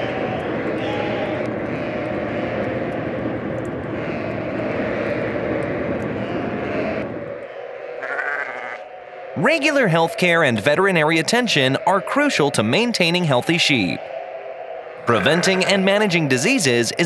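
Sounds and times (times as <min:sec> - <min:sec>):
sheep bleating: 0:00.8 - 0:02.8, 0:04.0 - 0:05.3, 0:06.1 - 0:07.1, 0:07.9 - 0:08.9, 0:15.0 - 0:16.2.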